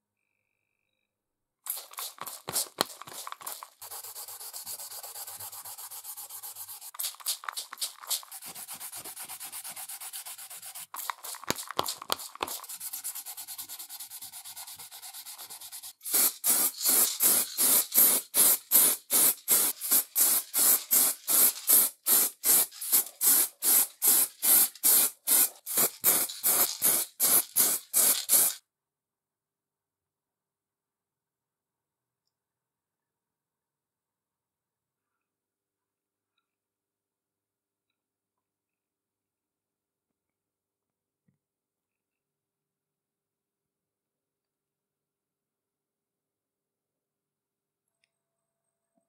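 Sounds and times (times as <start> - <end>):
spray gun hissing bursts: 1.7 - 28.6
wet sanding scrubbing: 1.7 - 28.6.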